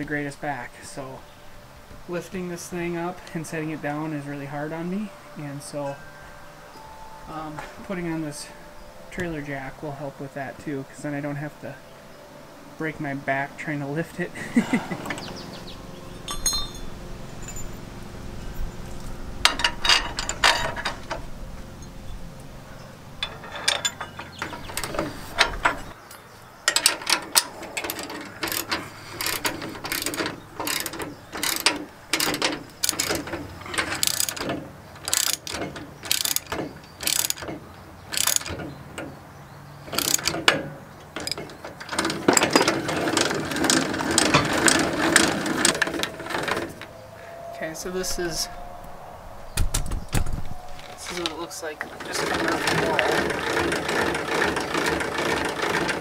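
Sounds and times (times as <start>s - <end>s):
ratchet wrench clicking: 26.7s - 38.6s, 39.9s - 40.6s.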